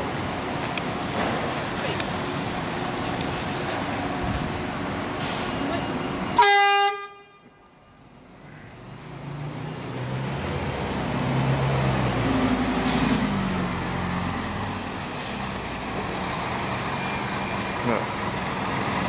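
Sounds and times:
diesel bus engine pulling away: 0:00.0 - 0:06.4, 0:08.0 - 0:19.0
short air hisses: 0:05.2 - 0:05.6.

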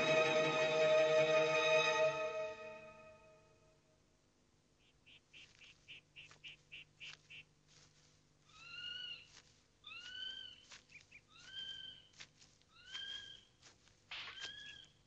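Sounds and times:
drawn-out whistled bird calls: 0:04.8 - 0:07.5, 0:08.5 - 0:15.0
short high bird chirps: 0:04.8 - 0:07.5, 0:14.2 - 0:15.0.

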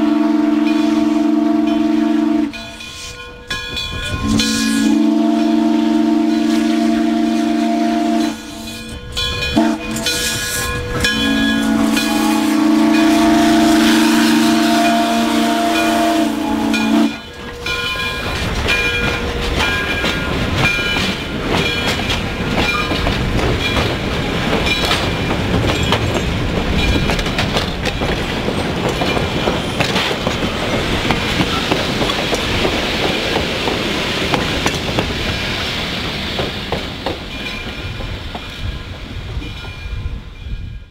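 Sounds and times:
steam locomotive passing: 0:00.0 - 0:40.9
high ringing notes: 0:08.2 - 0:20.0
train wheels clicking over rails: 0:08.2 - 0:40.2.

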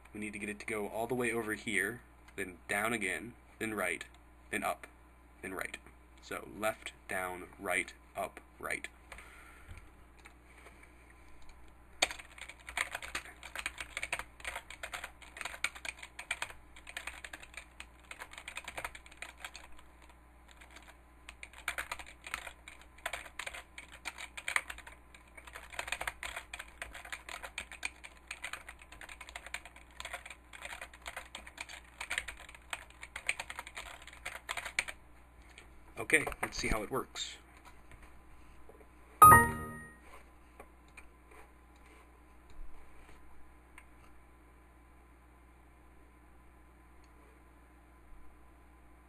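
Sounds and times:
typing on computer keyboard: 0:12.0 - 0:35.0.

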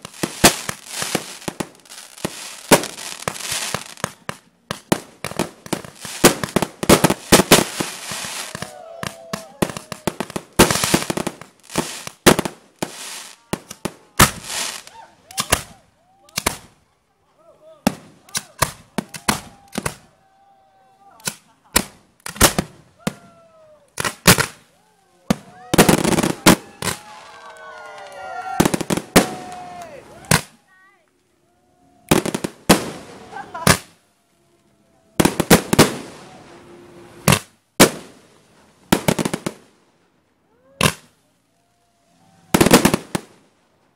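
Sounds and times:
firework bangs: 0:00.0 - 0:15.8, 0:16.4 - 0:16.8, 0:17.9 - 0:20.1, 0:21.2 - 0:23.2, 0:24.0 - 0:24.7, 0:25.3 - 0:30.6, 0:32.1 - 0:34.0, 0:35.2 - 0:39.7, 0:40.8 - 0:41.2, 0:42.5 - 0:43.5
crackling firework hiss: 0:00.0 - 0:16.8, 0:17.9 - 0:20.1, 0:21.2 - 0:23.3, 0:23.9 - 0:30.7, 0:32.1 - 0:34.0, 0:35.2 - 0:40.0, 0:42.1 - 0:43.6
people whooping: 0:08.0 - 0:10.4, 0:13.2 - 0:16.5, 0:17.4 - 0:21.6, 0:22.9 - 0:24.0, 0:24.6 - 0:37.0, 0:40.5 - 0:43.1.

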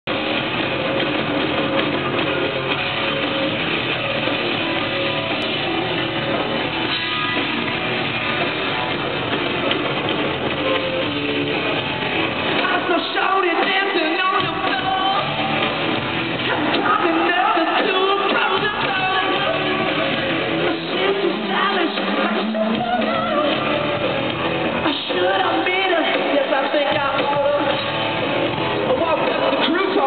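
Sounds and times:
distorted electric guitars: 0:00.0 - 0:30.0
drums: 0:00.0 - 0:30.0
rock band playing live: 0:00.0 - 0:30.0
person singing: 0:12.6 - 0:15.4, 0:16.4 - 0:24.2, 0:24.8 - 0:27.9.

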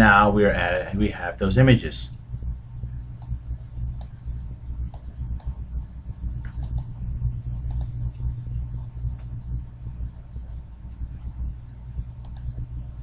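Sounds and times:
steady low hum: 0:00.0 - 0:13.0
computer mouse clicks: 0:03.2 - 0:04.2, 0:04.8 - 0:05.6, 0:06.4 - 0:07.0, 0:07.6 - 0:08.3, 0:12.2 - 0:12.5.

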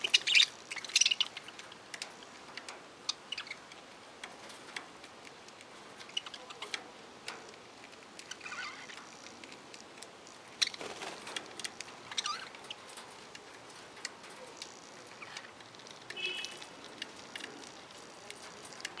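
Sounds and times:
budgerigars chirping and warbling: 0:00.0 - 0:01.8, 0:03.0 - 0:03.7, 0:06.0 - 0:06.8, 0:10.6 - 0:13.1
sharp ticks and clicks: 0:00.0 - 0:19.0.

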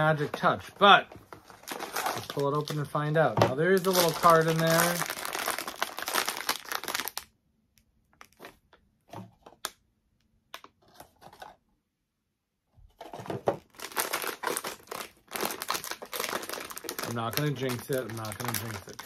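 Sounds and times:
paper and foil crinkling: 0:01.3 - 0:03.0, 0:03.6 - 0:07.2, 0:13.1 - 0:19.0
wrapping tearing: 0:01.4 - 0:02.9, 0:03.7 - 0:07.3, 0:13.6 - 0:19.0.

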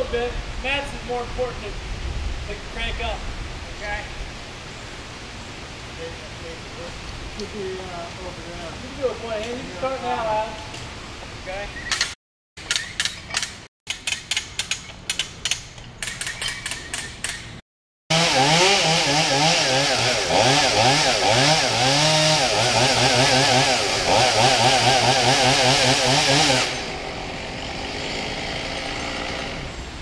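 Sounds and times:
sharp clicks and knocks: 0:11.9 - 0:17.6
two-stroke chainsaw revving: 0:18.1 - 0:29.7.

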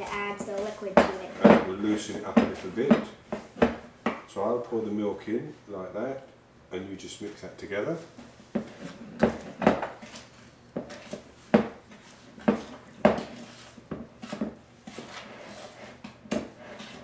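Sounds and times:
wooden spoon scraping plastic bowl: 0:00.0 - 0:03.7, 0:08.6 - 0:17.0.

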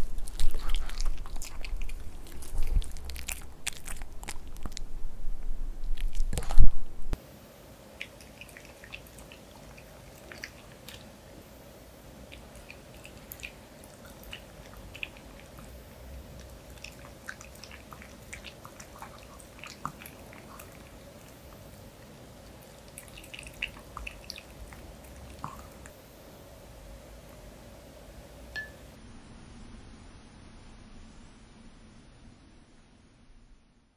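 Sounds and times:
faint steady hum: 0:00.0 - 0:33.9
dog licking a spoon: 0:00.2 - 0:04.7, 0:12.3 - 0:15.8, 0:16.4 - 0:25.9.

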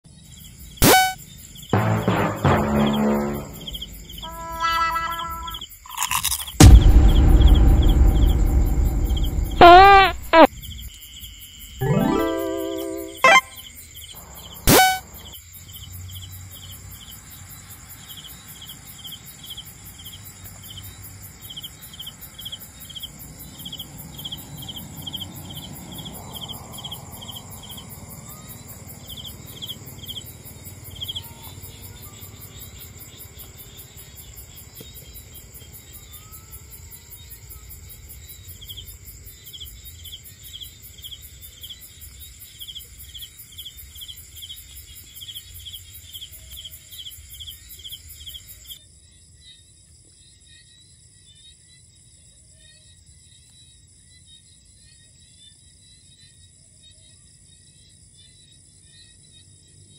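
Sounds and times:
cricket chirping: 0:00.1 - 0:59.9
high-pitched insect drone: 0:02.7 - 0:06.6.

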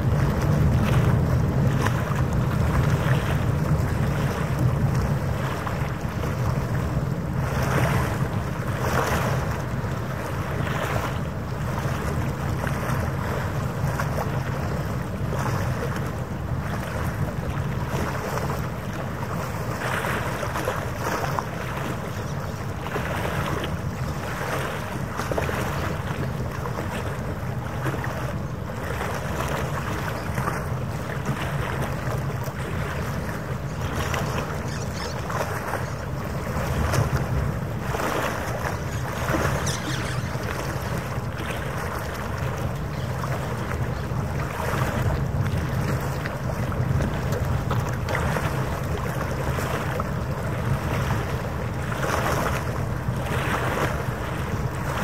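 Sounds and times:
water lapping: 0:00.0 - 0:55.0
wind gusts on microphone: 0:00.0 - 0:55.0
boat engine humming: 0:27.2 - 0:47.0.

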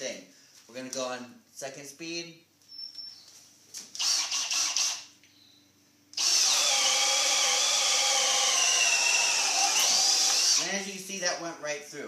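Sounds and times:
hammer drill boring into wood: 0:04.0 - 0:05.1, 0:06.2 - 0:10.8.

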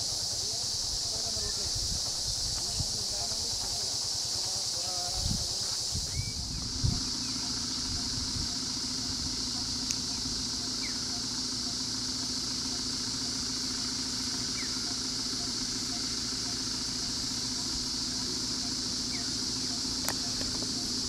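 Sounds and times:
vehicle engine idling: 0:00.0 - 0:21.0
high-pitched drone: 0:06.1 - 0:21.0
faint regular pulse: 0:06.2 - 0:21.0.

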